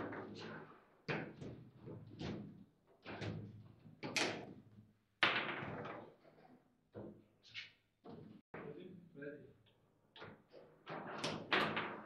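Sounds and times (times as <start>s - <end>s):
foosball ball and rods knocking: 5.2s - 6.2s, 10.2s - 12.0s.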